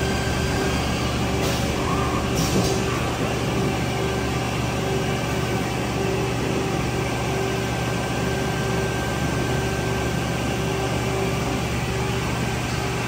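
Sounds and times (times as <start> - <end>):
machine mechanical hum: 0.0 - 13.0
mid-pitched machine tone: 0.0 - 13.0.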